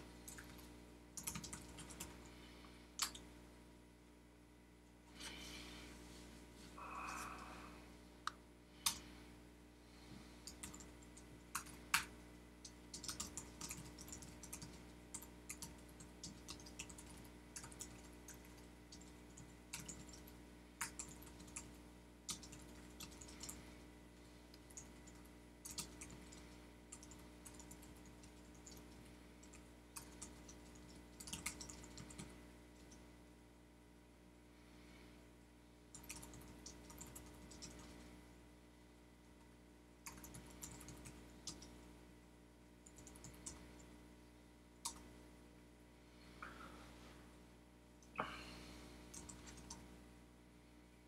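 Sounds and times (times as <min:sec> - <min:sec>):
faint steady hum: 0:00.0 - 0:51.0
typing on computer keyboard: 0:01.2 - 0:02.2, 0:10.4 - 0:23.6, 0:24.7 - 0:33.0, 0:35.9 - 0:38.0, 0:40.0 - 0:41.7, 0:42.8 - 0:43.9, 0:49.1 - 0:49.8.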